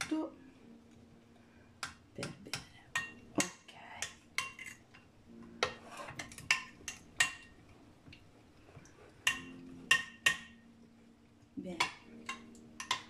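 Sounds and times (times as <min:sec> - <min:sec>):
teaspoon clinking against glass bowl: 0:09.3 - 0:10.6.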